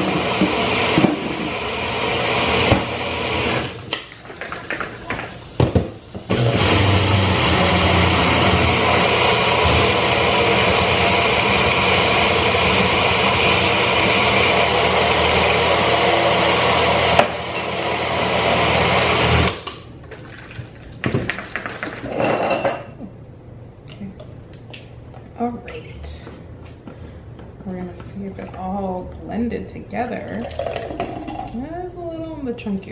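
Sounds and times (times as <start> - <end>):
blender motor running: 0.0 - 3.8, 6.3 - 19.6.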